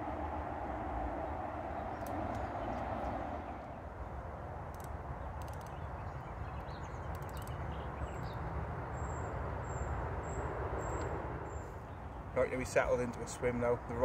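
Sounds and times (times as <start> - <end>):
light clicks: 4.7 - 5.9, 6.6 - 7.8.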